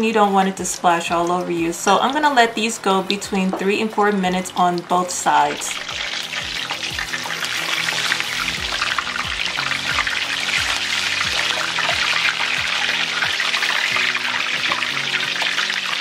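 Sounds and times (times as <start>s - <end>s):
fish deep-frying in oil: 0.0s - 16.0s
background music with beat: 5.6s - 16.0s.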